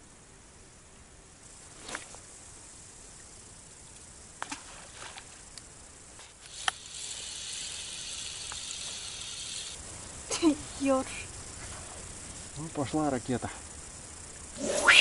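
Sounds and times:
fishing reel whirring: 6.4s - 9.8s.

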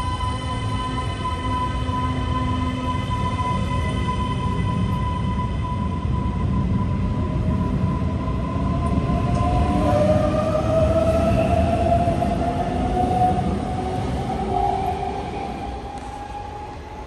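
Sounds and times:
steady train whine: 0.0s - 17.0s
train wheels rumbling on rails: 0.0s - 17.0s
train whine rising in pitch: 0.0s - 17.0s.

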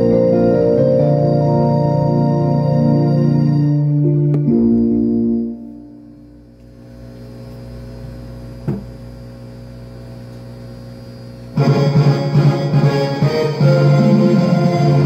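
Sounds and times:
music: 0.0s - 6.5s, 11.6s - 15.0s
electrical mains hum: 0.0s - 15.0s
short knock: 8.6s - 8.9s.

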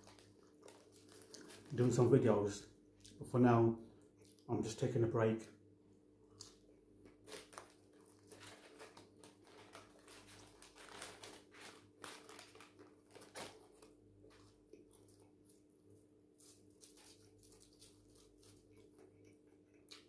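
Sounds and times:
paper wrapping crinkling: 0.0s - 2.2s, 7.1s - 14.6s.

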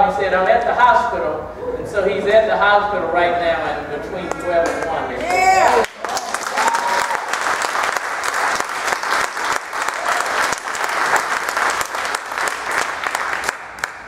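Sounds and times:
congregation clapping: 4.6s - 14.0s.

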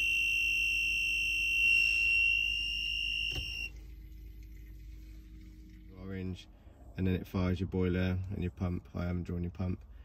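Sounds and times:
voltage tester beeping: 0.0s - 3.7s.

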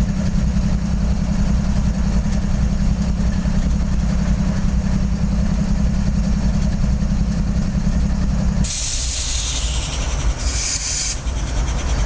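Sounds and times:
locomotive engine rumbling: 0.0s - 12.0s
compressed air hissing: 8.6s - 11.4s.

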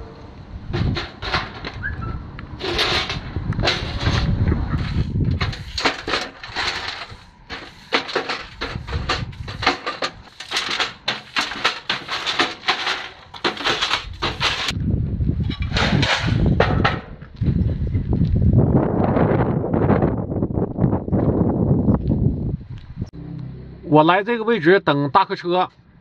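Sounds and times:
low rumble: 0.0s - 5.8s, 14.1s - 24.5s
push broom sweeping concrete: 2.6s - 14.8s.

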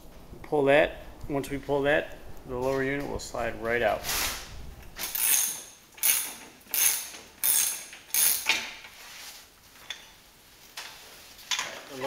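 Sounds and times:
ratchet wrench clicking: 5.0s - 8.6s.

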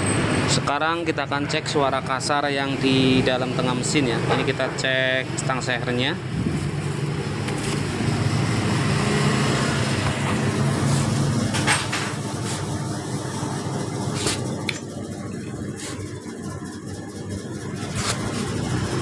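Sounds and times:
vehicle engine rumbling: 0.0s - 19.0s.

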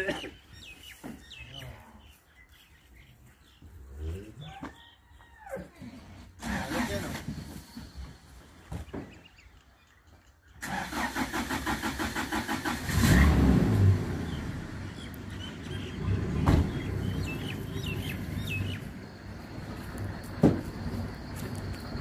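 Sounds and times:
birds chirping: 0.0s - 5.5s, 6.8s - 11.3s, 12.8s - 22.0s
truck engine starting and running: 6.4s - 8.4s, 10.6s - 22.0s.

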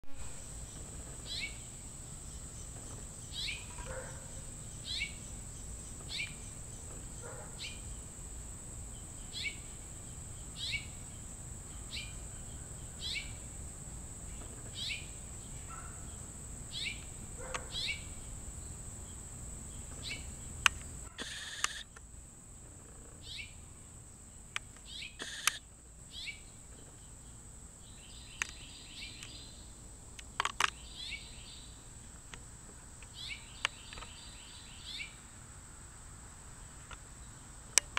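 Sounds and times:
high insect-like whine: 0.0s - 37.9s
bird chirping: 0.3s - 8.2s, 8.9s - 13.6s, 14.2s - 21.8s, 22.8s - 29.8s, 30.4s - 31.9s, 33.0s - 35.3s
sharp clicks: 20.6s - 22.0s, 24.5s - 25.6s, 30.2s - 30.8s.

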